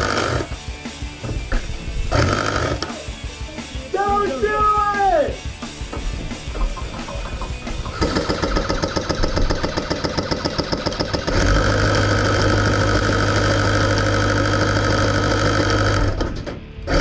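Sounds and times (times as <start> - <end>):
airsoft guns firing full auto: 8.0 - 16.2
electric minigun motor whir: 8.0 - 16.3.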